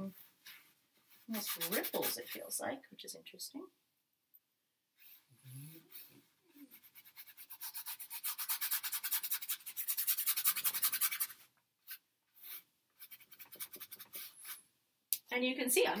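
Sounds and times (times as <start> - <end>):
paintbrush scrubbing on canvas: 1.1 - 2.5, 5.9 - 14.6.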